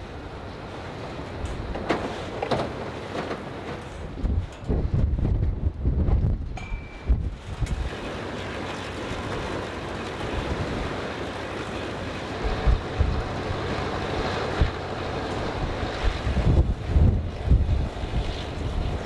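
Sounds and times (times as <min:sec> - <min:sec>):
wind buffeting microphone: 0:03.2 - 0:19.0
low thumps of gusts: 0:04.0 - 0:07.9, 0:12.4 - 0:19.0.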